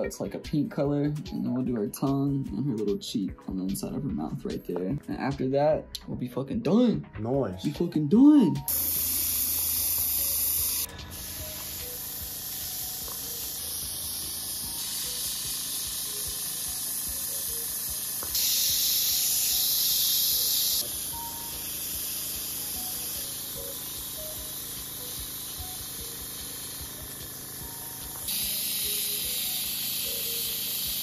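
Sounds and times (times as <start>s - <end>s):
airbrush spraying hiss: 8.7s - 31.0s.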